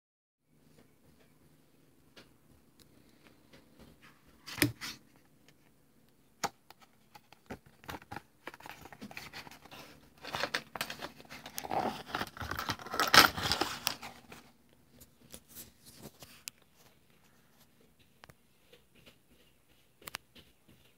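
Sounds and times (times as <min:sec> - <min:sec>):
glossy paper pages rustling: 0:06.7 - 0:20.9.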